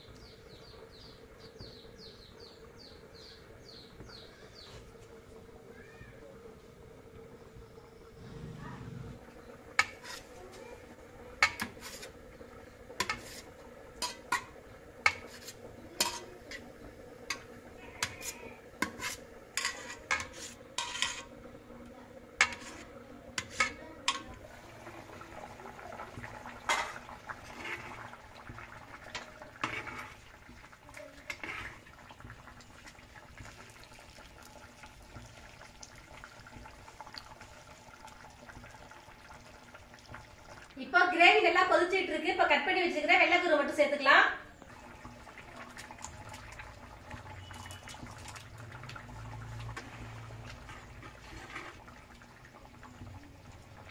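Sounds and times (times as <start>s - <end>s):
knife tapping and scraping on steel plate: 9.8s - 10.2s, 11.4s - 12.1s, 13.0s - 13.4s, 14.0s - 16.6s, 17.3s - 21.3s, 22.4s - 24.3s.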